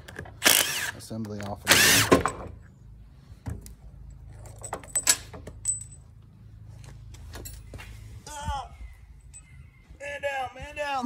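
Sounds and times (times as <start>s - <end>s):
metal parts clinking and knocking: 4.1s - 6.2s
ringing metallic tinkles: 9.2s - 9.7s.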